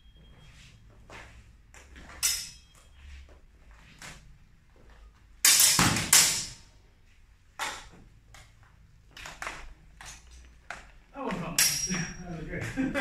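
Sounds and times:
sword blades clashing: 2.2s - 2.7s, 5.4s - 6.6s, 11.5s - 12.2s.

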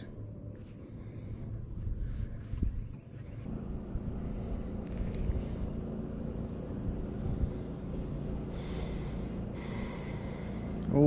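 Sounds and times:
insects chirping: 0.0s - 11.0s
low rumbling noise: 0.0s - 11.0s.

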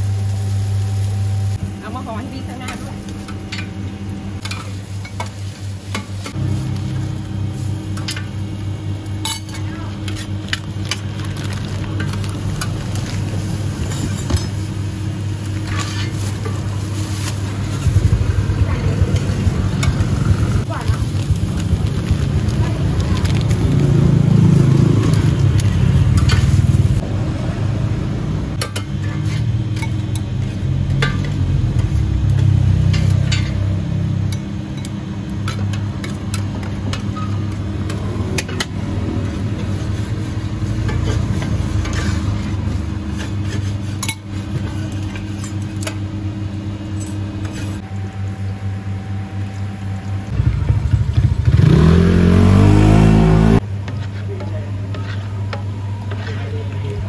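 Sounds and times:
motor engine running: 15.6s - 29.7s, 47.5s - 54.4s
motorcycle revving: 17.4s - 29.7s, 50.3s - 53.8s.

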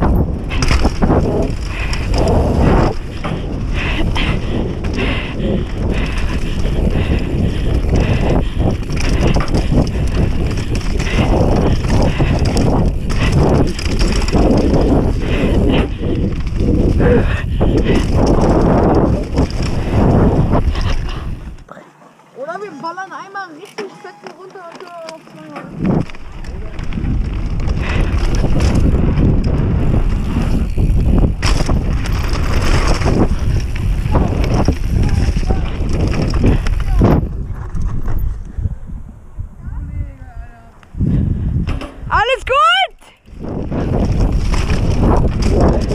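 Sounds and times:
bike knocks and rattles: 0.0s - 21.7s, 23.6s - 38.5s, 41.3s - 42.2s, 43.6s - 45.9s
wind buffeting microphone: 0.0s - 21.7s, 25.6s - 45.9s
tyres rolling on dirt trail: 0.0s - 39.6s, 40.2s - 45.9s.

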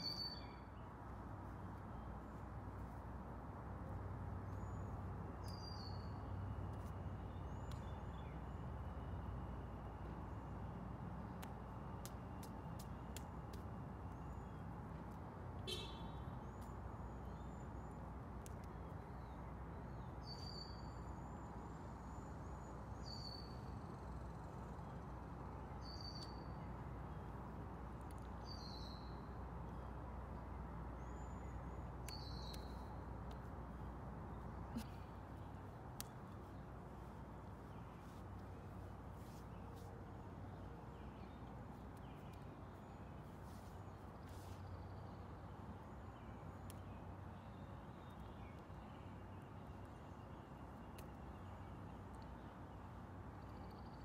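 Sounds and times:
faint bird chirps: 0.0s - 0.8s
bird chirping: 0.0s - 0.9s, 4.5s - 8.6s, 19.0s - 27.3s, 31.0s - 33.4s
low outdoor background noise: 0.0s - 54.0s.

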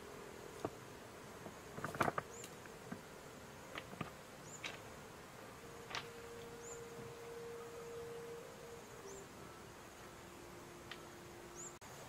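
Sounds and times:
faint steady hum: 0.0s - 12.0s
stones knocking under footsteps: 1.7s - 3.0s, 3.7s - 4.9s.

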